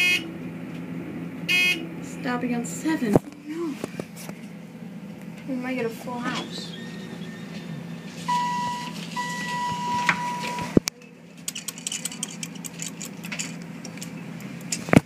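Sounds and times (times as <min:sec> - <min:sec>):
elevator electronic beep: 0:00.0 - 0:00.3, 0:01.5 - 0:01.9, 0:06.4 - 0:10.8
elevator hum: 0:00.0 - 0:15.0
elevator clunk: 0:08.3 - 0:10.8.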